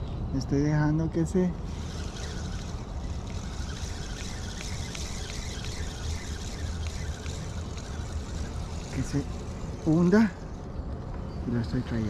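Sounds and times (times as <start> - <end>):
spinning reel ticking: 1.6 - 10.6.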